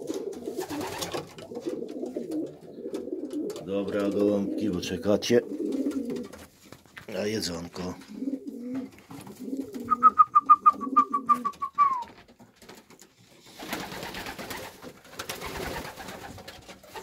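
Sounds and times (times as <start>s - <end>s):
pigeons cooing: 0.0s - 6.5s, 7.9s - 12.1s.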